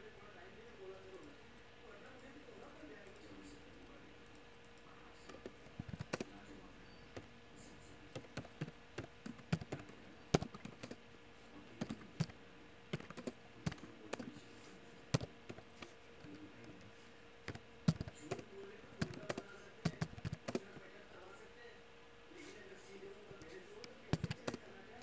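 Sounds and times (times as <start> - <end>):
faint steady hum: 0.0 - 25.0
keyboard typing clicks: 4.3 - 6.4, 8.1 - 11.0, 11.8 - 14.3, 15.1 - 16.8, 17.4 - 20.8, 24.1 - 24.6.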